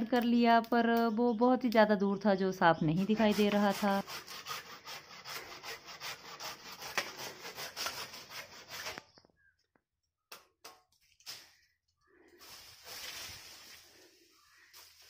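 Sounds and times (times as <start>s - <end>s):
hand saw cutting branch: 2.9s - 9.1s.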